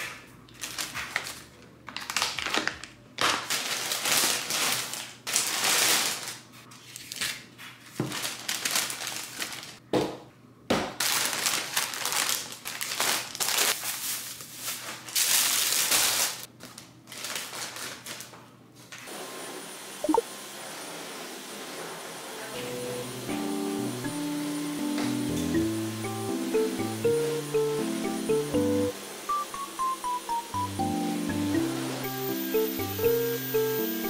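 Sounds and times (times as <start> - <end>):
plastic bag rustling: 0.0 - 9.8, 11.0 - 18.9.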